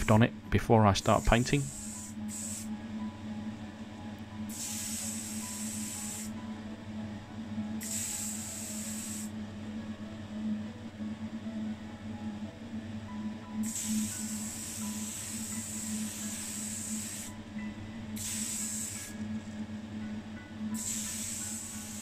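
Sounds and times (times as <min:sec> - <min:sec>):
background music: 0:00.0 - 0:22.0
spray can hissing: 0:01.1 - 0:02.7, 0:04.5 - 0:06.3, 0:07.8 - 0:09.3, 0:13.6 - 0:17.3, 0:18.2 - 0:19.1, 0:20.8 - 0:22.0.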